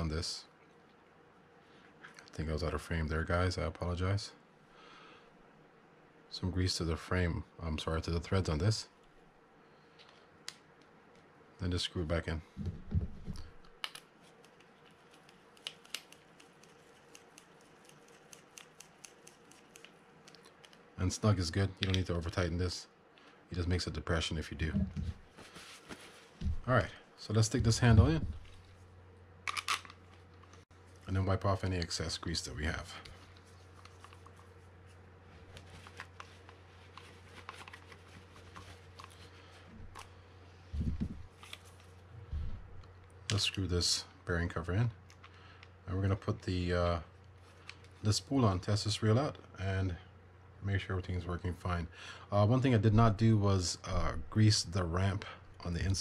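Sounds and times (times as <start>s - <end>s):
faint steady hum: 0.0s - 56.0s
hands rustling and clicking parts: 29.5s - 30.6s, 33.0s - 34.5s, 35.5s - 40.1s.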